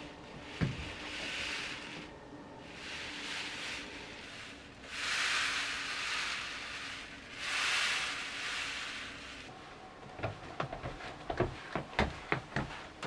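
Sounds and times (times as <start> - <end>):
beans rolling in a bamboo sieve: 0.0 - 9.6.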